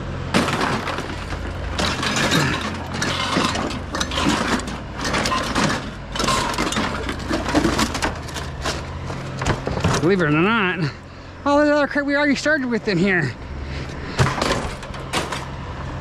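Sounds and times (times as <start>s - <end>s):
engine idling hum: 0.0s - 16.0s
scrap metal clattering: 0.3s - 10.6s, 13.8s - 15.6s.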